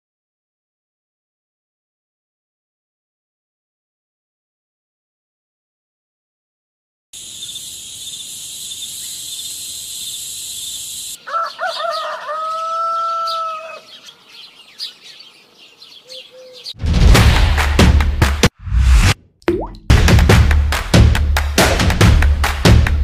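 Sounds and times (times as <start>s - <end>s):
pulsing high hiss: 7.2s - 11.2s
faint bird chirps: 7.2s - 16.8s
rooster crowing: 11.2s - 14.3s.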